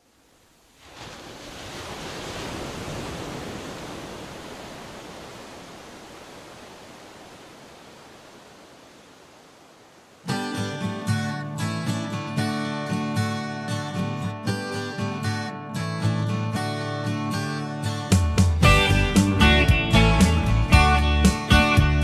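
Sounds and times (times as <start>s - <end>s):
strummed acoustic guitar: 10.2s - 22.0s.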